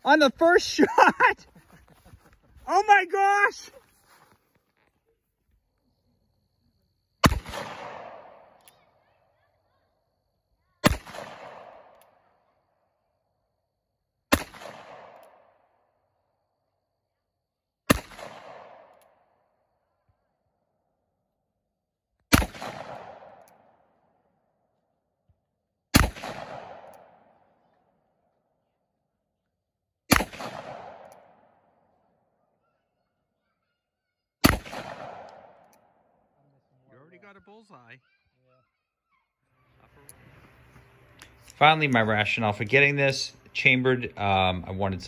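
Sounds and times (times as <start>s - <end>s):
pistol shots with echo: 7.2s - 9.0s, 10.8s - 12.4s, 14.3s - 15.7s, 17.9s - 19.3s, 22.3s - 23.9s, 25.9s - 27.7s, 30.1s - 32.0s, 34.4s - 36.2s
revolver shots echoing: 34.4s - 35.7s.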